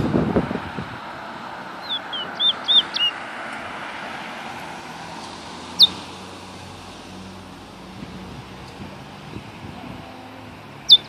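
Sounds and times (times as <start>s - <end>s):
road traffic hum: 0.0s - 11.0s
songbird whistling notes: 1.8s - 3.2s.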